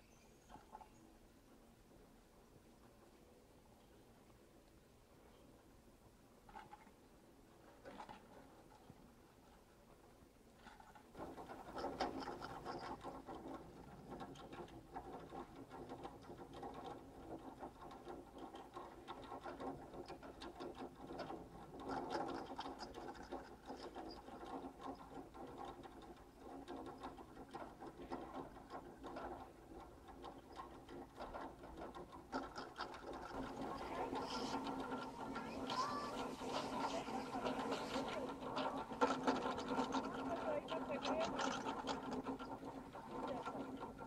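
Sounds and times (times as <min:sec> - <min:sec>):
ski lift mechanical rattle: 0:10.5 - 0:44.0
steady hum: 0:33.4 - 0:41.0.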